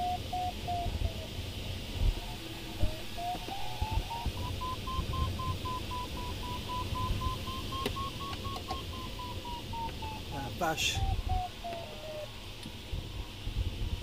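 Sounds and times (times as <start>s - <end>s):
air rushing in cockpit: 0.0s - 14.0s
variometer beeping rapidly: 2.8s - 12.0s.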